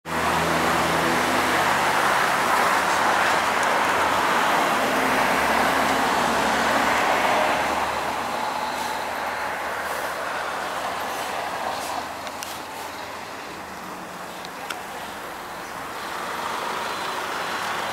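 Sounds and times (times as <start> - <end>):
bus engine and tyres: 0.0 - 17.9.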